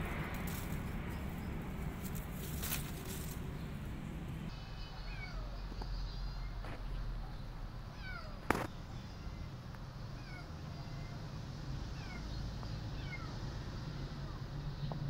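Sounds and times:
steady low rumble: 0.0s - 15.0s
kitten meowing: 7.9s - 9.4s, 10.1s - 11.3s, 12.0s - 12.4s, 13.0s - 13.4s.

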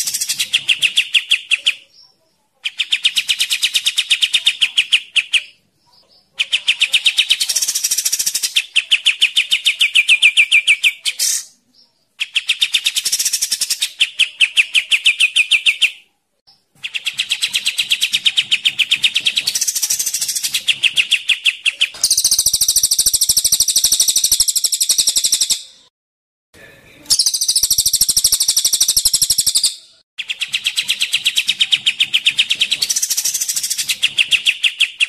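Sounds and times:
full bright bird rattle: 30.2s - 35.0s.

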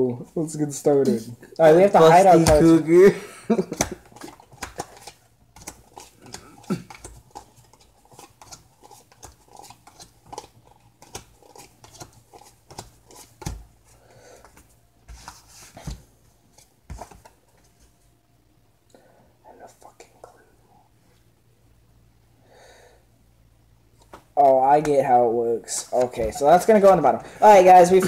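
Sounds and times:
playing cards clicking and snapping: 3.7s - 13.6s.

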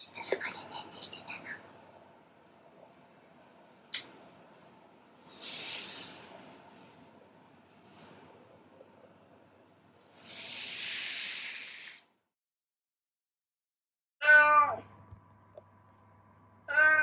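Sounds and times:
low electrical hum: 0.0s - 10.6s, 14.4s - 17.0s
soft hiss-like rush: 5.2s - 8.5s, 10.0s - 12.0s
cat meowing: 14.2s - 14.8s, 16.7s - 17.0s.

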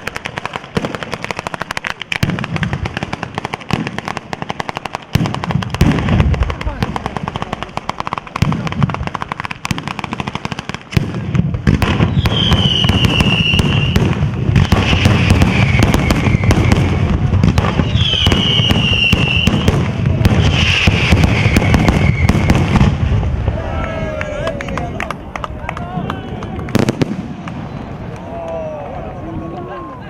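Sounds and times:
firecracker bangs: 0.0s - 23.6s, 26.7s - 27.8s
whistling fireworks sliding down: 11.8s - 24.2s.

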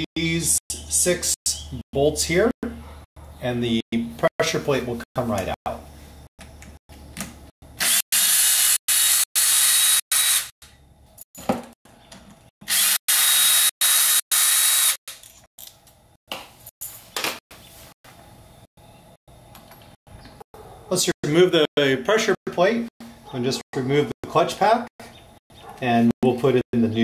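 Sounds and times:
cordless drill spinning bolts: 7.8s - 10.5s, 12.7s - 15.4s.

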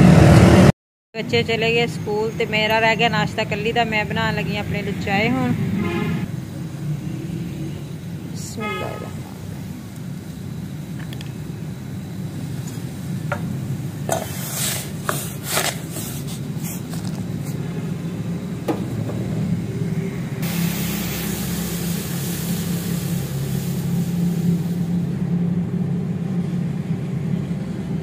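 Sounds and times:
milk foaming hiss: 20.4s - 25.1s.

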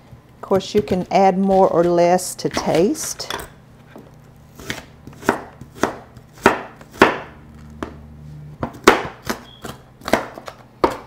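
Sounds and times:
knife chopping on cutting board: 0.7s - 3.3s, 4.6s - 8.0s, 8.6s - 11.0s.

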